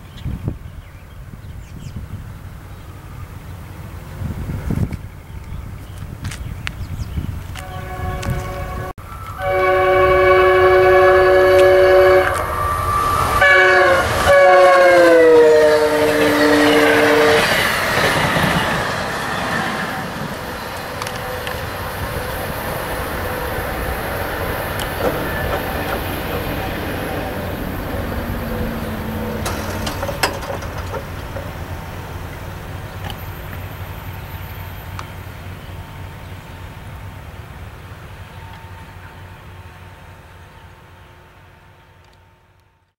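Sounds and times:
train rolling rumble: 0.2 - 42.9
locomotive horn blasts: 7.6 - 17.8.

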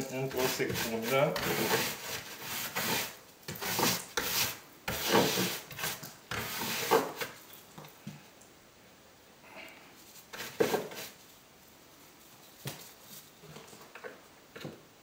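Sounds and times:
brush scrubbing stone wall: 0.0 - 7.4.

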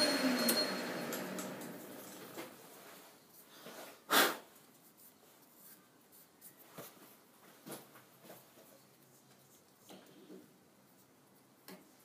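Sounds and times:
faint clicks and rubs of hands: 4.6 - 12.0.

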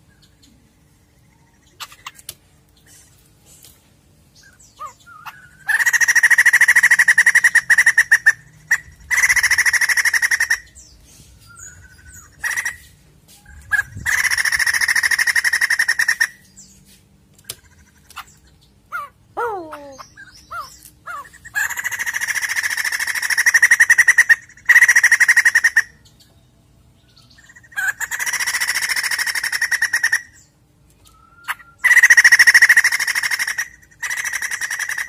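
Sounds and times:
bird cackling calls: 4.7 - 10.9, 11.6 - 16.4, 17.4 - 26.0, 27.4 - 30.5, 31.2 - 35.0.

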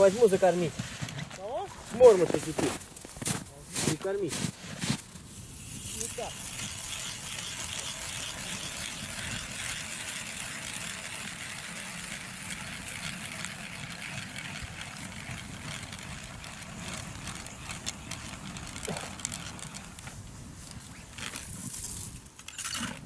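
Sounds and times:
powered ice auger drilling: 3.8 - 23.0.

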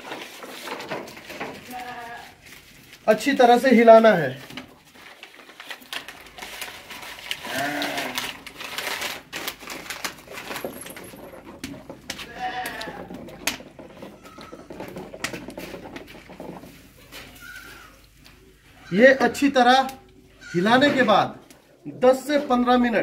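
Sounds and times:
goat bleating: 1.6 - 2.4, 7.4 - 8.3, 12.2 - 13.2
stick stirring in metal pot: 8.1 - 18.4.

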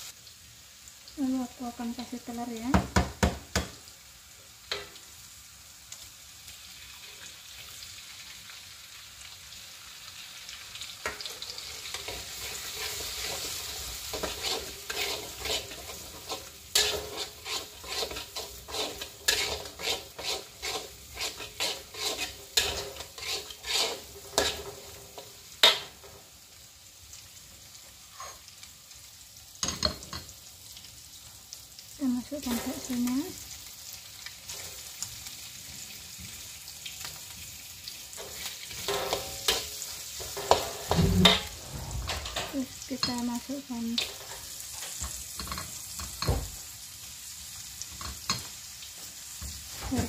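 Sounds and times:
egg sizzling in oil: 0.0 - 50.0
metal spatula scraping wok: 11.0 - 26.2, 28.1 - 28.5, 32.4 - 33.1, 38.2 - 46.3.

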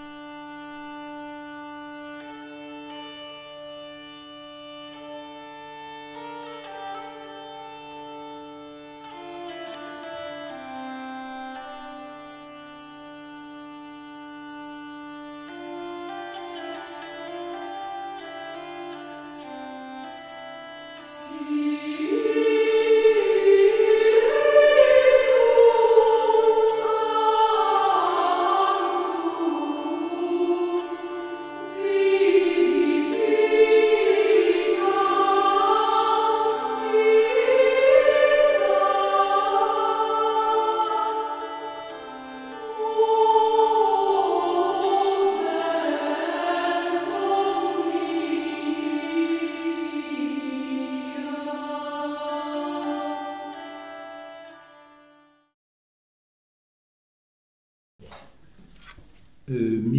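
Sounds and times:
sacred vocal chant: 21.0 - 41.8, 42.5 - 53.0, 59.5 - 59.9.

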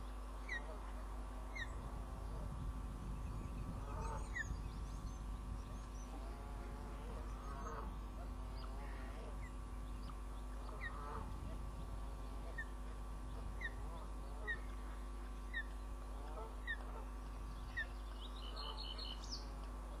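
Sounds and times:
steady electrical hum: 0.0 - 20.0
lower chattering bird calls: 1.5 - 19.7.

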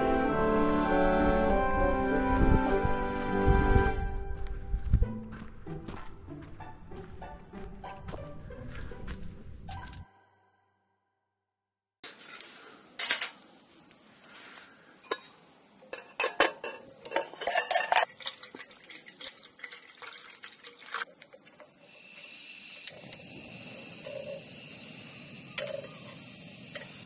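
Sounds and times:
kettle and lid clinking: 15.1 - 21.7, 23.9 - 24.5
gas burner hissing: 21.6 - 27.0.

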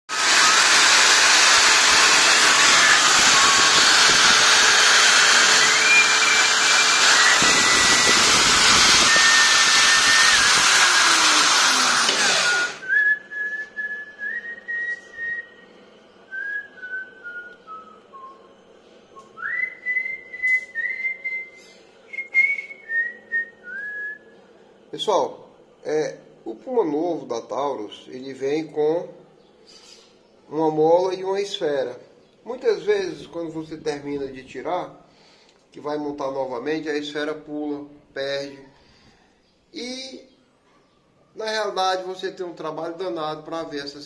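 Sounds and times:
drill winding down: 0.1 - 12.9
file rasping on spinning pin: 0.2 - 12.8
man whistling a tune: 12.8 - 18.4, 19.2 - 24.3.

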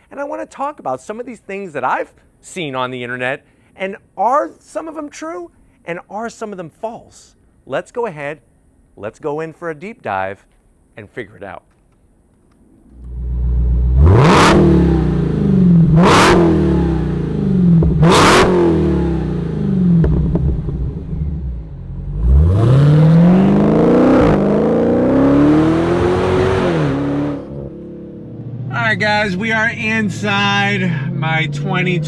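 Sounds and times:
car engine revving: 12.9 - 32.0.

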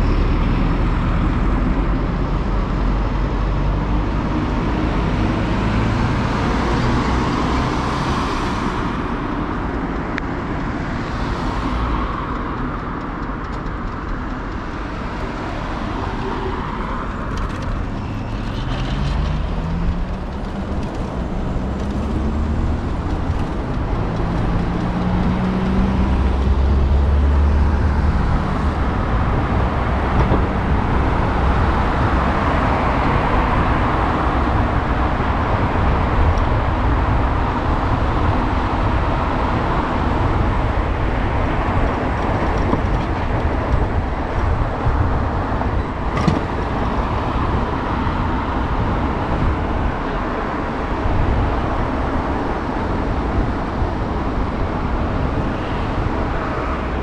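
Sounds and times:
vehicle low rumble: 0.0 - 57.0
car engine pulling away: 14.9 - 35.7.

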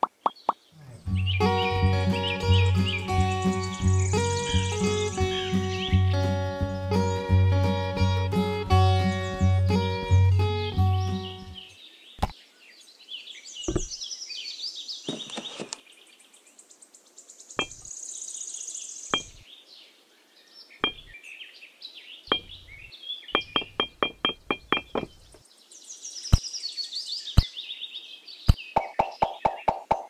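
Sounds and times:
small birds chirping: 0.0 - 30.0
sharp knocks: 13.7 - 13.9, 17.6 - 17.8, 19.2 - 19.4, 20.8 - 21.1, 22.3 - 22.7, 23.4 - 25.4.

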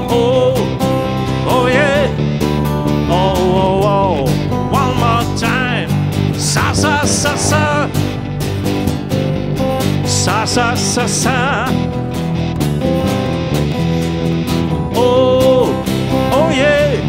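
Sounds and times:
man singing: 0.0 - 2.3, 2.9 - 8.1, 10.0 - 11.9, 14.8 - 17.0
electric guitar: 0.0 - 17.0
strummed acoustic guitars: 0.0 - 17.0.

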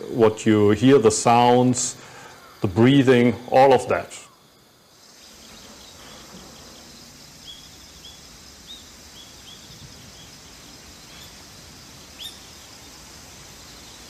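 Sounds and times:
insects hissing: 0.0 - 14.0
high bird chirps: 5.0 - 14.0.

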